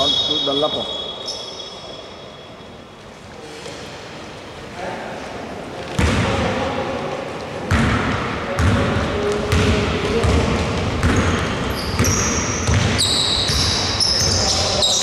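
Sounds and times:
high-pitched squeaks: 0.0s - 3.1s
basketball bouncing on wooden floor: 7.7s - 13.8s.

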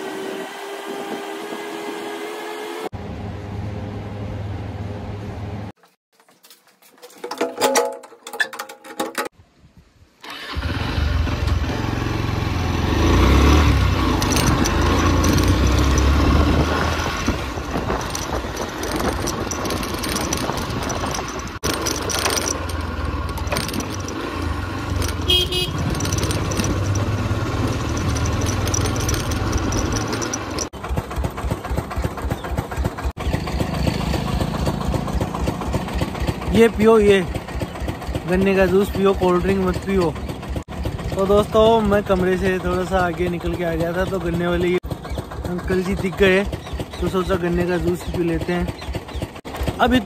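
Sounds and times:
metal door bolt clicks: 7.1s - 9.4s
motorcycle engine running: 11.0s - 50.0s
wind noise on microphone: 14.4s - 21.6s.

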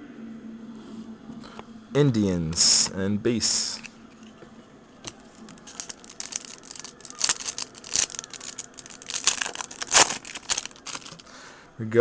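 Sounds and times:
plastic wrapper crackling: 5.1s - 11.3s.

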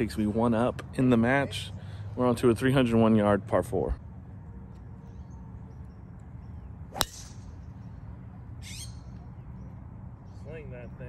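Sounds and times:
low outdoor background: 0.0s - 11.0s
golf club striking ball: 6.9s - 7.5s.

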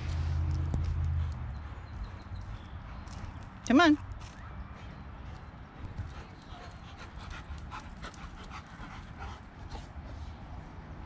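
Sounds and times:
dog panting: 5.8s - 10.2s.

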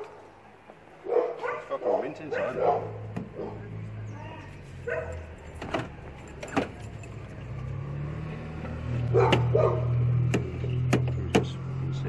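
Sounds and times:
dog barking: 1.0s - 3.6s, 4.8s - 5.3s, 9.1s - 10.0s
low engine hum: 2.3s - 12.0s.

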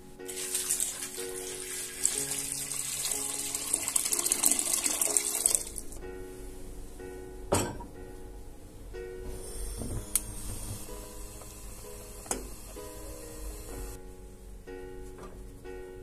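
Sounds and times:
water running from tap into sink: 0.3s - 5.8s.

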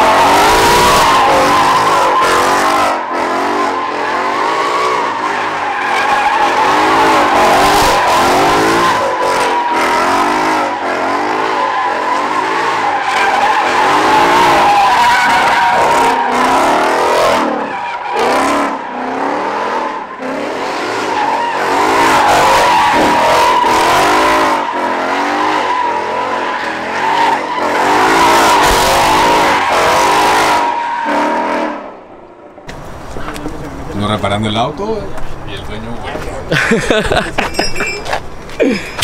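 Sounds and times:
car engine revving: 0.0s - 32.0s
tyres squealing: 3.7s - 19.0s, 21.0s - 31.1s, 37.2s - 39.0s.

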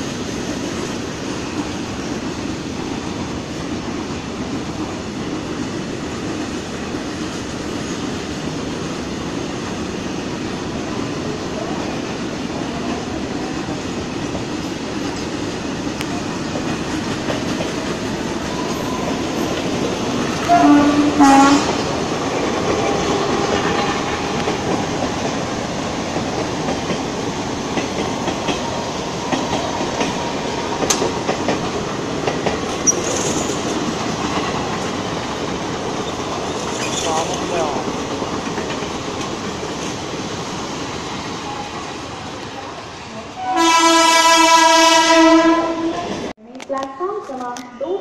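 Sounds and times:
train wheels clattering over rails: 0.0s - 42.3s
train horn blasts: 20.4s - 21.8s, 43.3s - 46.1s.

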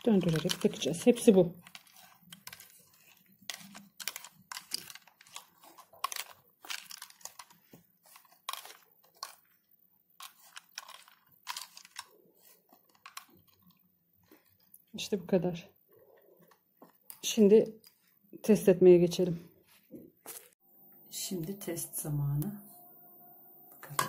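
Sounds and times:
threaded fitting clicks and scrapes: 1.6s - 9.4s.

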